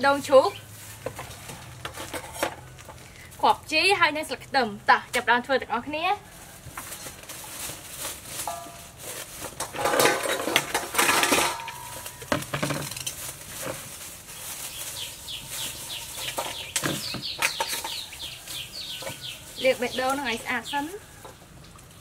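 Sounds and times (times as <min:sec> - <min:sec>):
bowls and utensils clattering: 0:08.3 - 0:13.9, 0:15.5 - 0:20.7.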